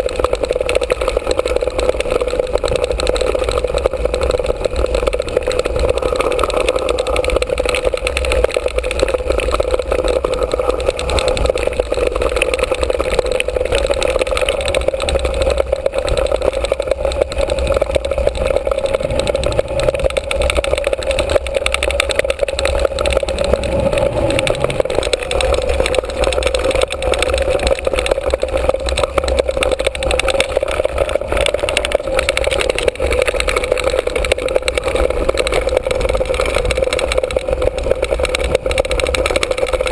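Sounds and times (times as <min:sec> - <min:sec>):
bike rattling over bumps: 0:00.0 - 0:39.9
wind and tyre noise: 0:00.0 - 0:39.9.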